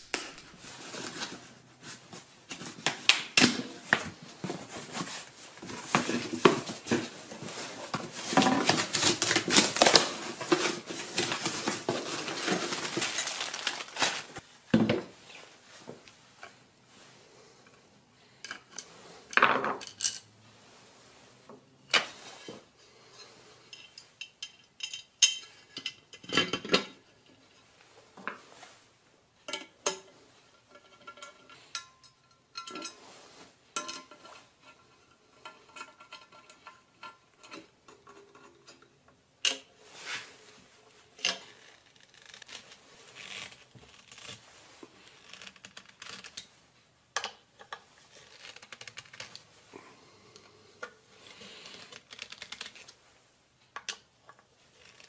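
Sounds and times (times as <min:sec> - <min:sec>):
metal clinks and scrapes: 0:22.3 - 0:27.0, 0:29.5 - 0:38.9.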